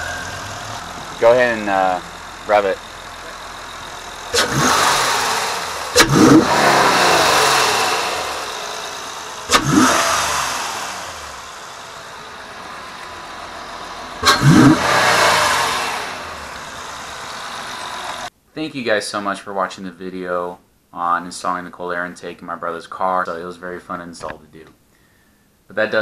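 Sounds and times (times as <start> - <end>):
car engine revving: 0.0 - 18.3.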